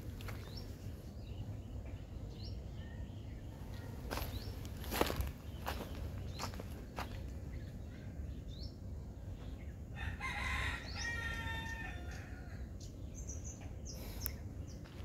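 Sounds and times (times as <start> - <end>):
rooster crowing: 10.0 - 12.7.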